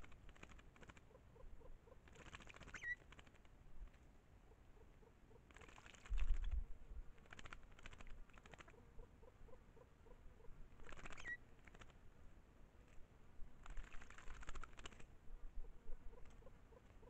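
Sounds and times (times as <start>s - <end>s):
bird splashing water: 2.0s - 3.5s, 5.5s - 6.5s, 7.2s - 8.8s, 13.6s - 15.1s
brief bird chirp: 10.9s - 11.4s.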